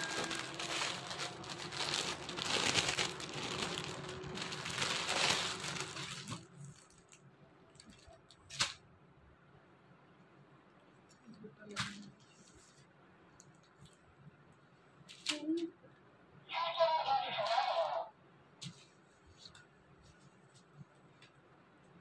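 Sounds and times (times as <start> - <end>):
plastic bag crinkling and rustling: 0.0 - 8.8.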